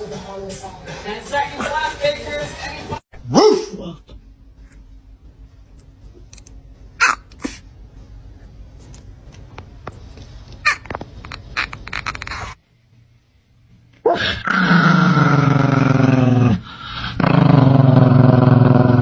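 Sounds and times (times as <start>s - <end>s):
small dog growling: 14.1s - 19.0s.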